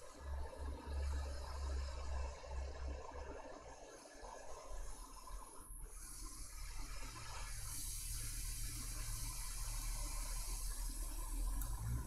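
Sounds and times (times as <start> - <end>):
hot air station hissing: 4.0 - 11.9.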